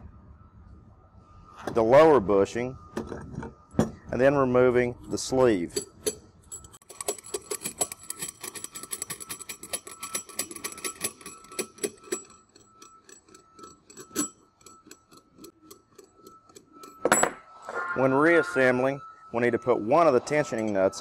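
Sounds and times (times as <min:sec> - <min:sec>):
ratchet wrench clicking: 0:05.7 - 0:17.0.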